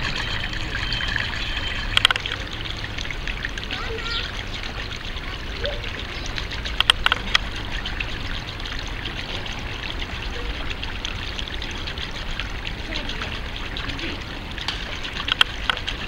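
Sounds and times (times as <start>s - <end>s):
water trickling: 0.0s - 16.0s.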